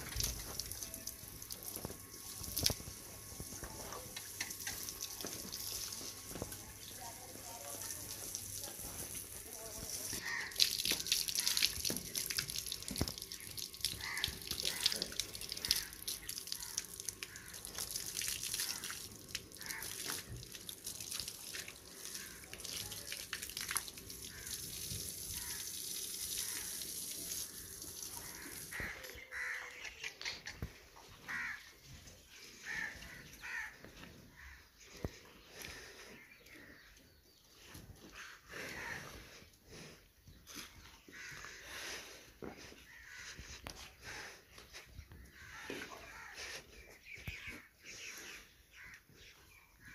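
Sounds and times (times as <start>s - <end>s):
water splashing and running: 0.0s - 30.7s.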